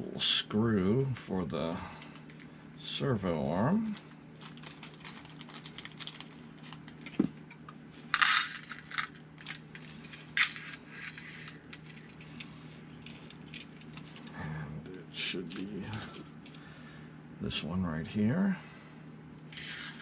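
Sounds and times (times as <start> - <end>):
plastic bag crinkling: 4.4 - 7.1
small screws clinking: 8.1 - 14.3, 19.5 - 20.0.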